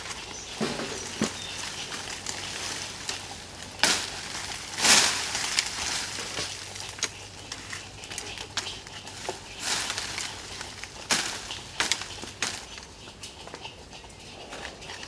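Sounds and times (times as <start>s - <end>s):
rustling leaves: 0.0s - 15.0s
hatchet chopping branches: 0.5s - 7.7s, 8.6s - 12.7s
twigs snapping: 0.7s - 12.9s.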